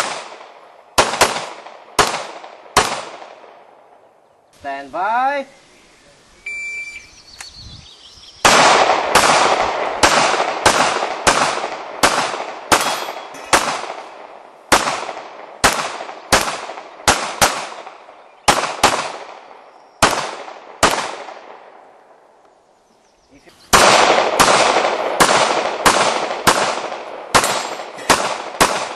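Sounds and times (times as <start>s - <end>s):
gunshots with echo: 0.0s - 3.7s, 8.4s - 21.9s, 23.7s - 28.9s
shot timer beep: 6.5s - 7.1s.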